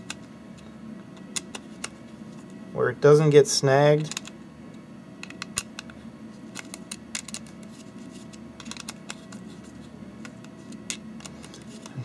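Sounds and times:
faint steady hum: 0.0 - 12.0
plastic parts handled: 4.0 - 4.3, 5.2 - 12.0.

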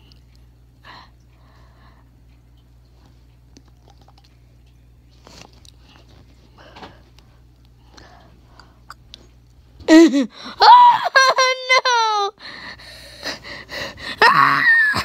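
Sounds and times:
lip smacks and tongue clicks: 3.3 - 4.8.

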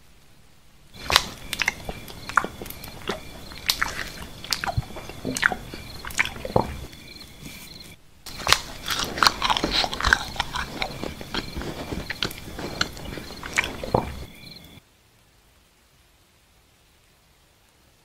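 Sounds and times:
close-miked chewing: 0.9 - 14.8.

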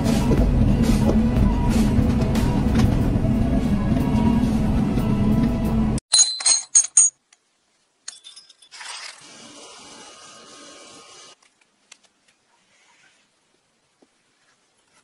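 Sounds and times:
engine running: 0.0 - 6.0
metallic clinks: 6.1 - 7.2, 8.0 - 8.8.

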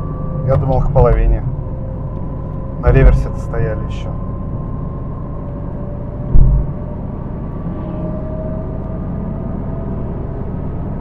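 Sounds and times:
car tyre and engine rumble: 0.0 - 11.0
heavy thump: 6.3 - 6.8.

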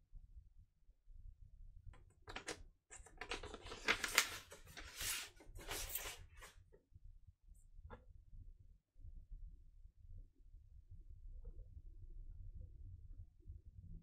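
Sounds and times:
vinyl record handling noise: 2.3 - 6.5.

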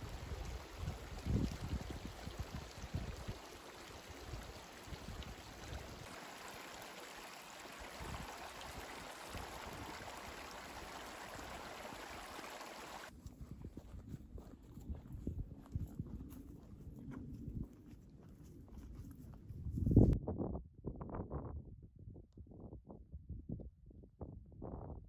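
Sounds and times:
wind buffeting microphone: 0.0 - 6.4, 7.6 - 25.0
running water rushing: 0.0 - 13.1.

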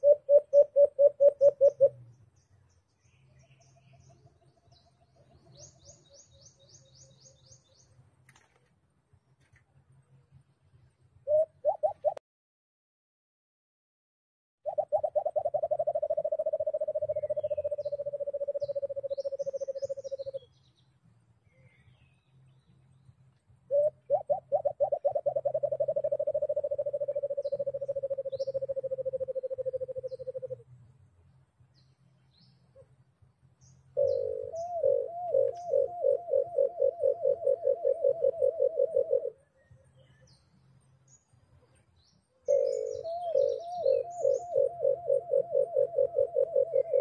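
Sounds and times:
dove hooting: 0.0 - 2.0, 11.2 - 12.2, 14.7 - 20.5, 23.7 - 30.7, 33.8 - 39.6, 42.4 - 47.0
small birds chirping: 0.0 - 12.2, 14.7 - 47.0.

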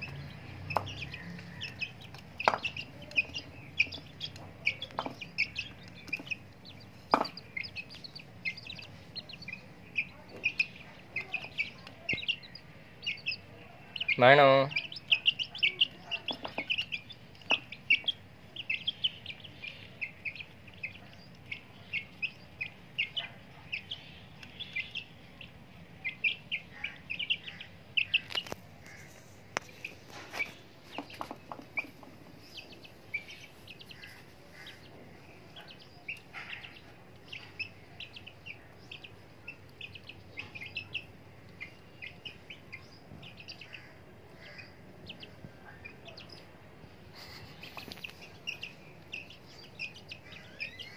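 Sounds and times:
chicks peeping: 0.0 - 50.9
sharp knocks: 7.1 - 7.4.

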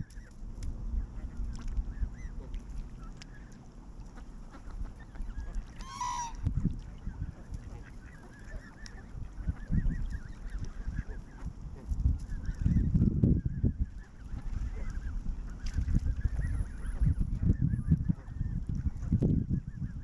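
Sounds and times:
low rumble: 0.0 - 5.4
geese honking: 4.5 - 6.4.

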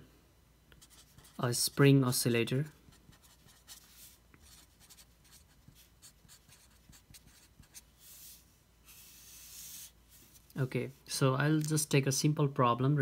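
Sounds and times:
marker scratching on paper: 0.8 - 1.4, 2.9 - 10.5.

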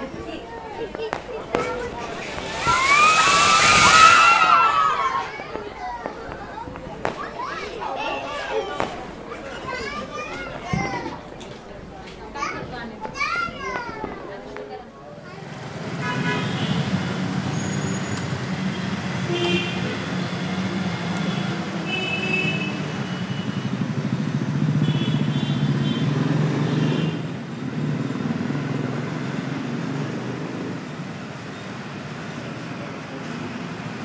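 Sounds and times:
road traffic: 0.0 - 34.0
motorcycle engine running: 22.8 - 26.4.

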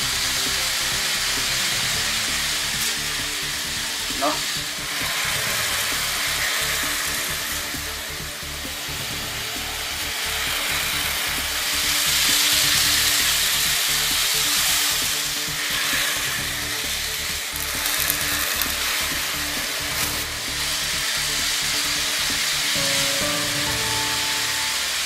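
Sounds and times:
toy train motors buzzing: 0.0 - 25.0.

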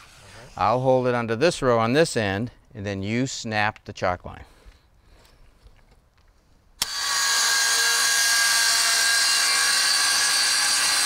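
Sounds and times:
circular saw cutting siding: 0.0 - 0.8, 6.8 - 11.0.

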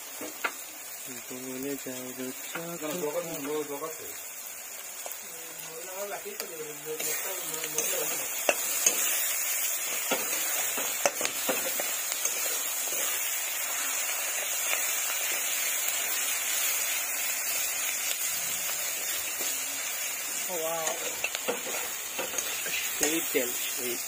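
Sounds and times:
food sizzling in hot oil: 0.0 - 24.0
spatula scraping a wok: 6.9 - 15.5, 18.8 - 23.7.

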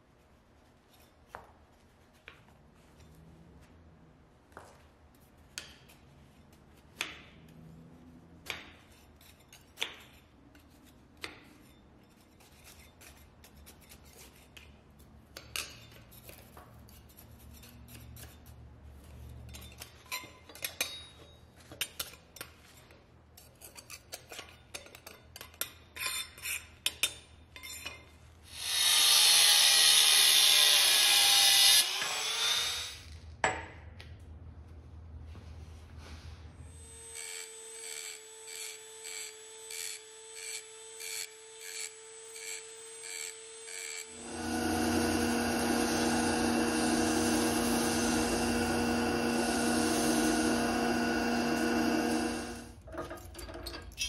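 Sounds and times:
power tool on metal: 28.5 - 33.1, 36.6 - 52.9.

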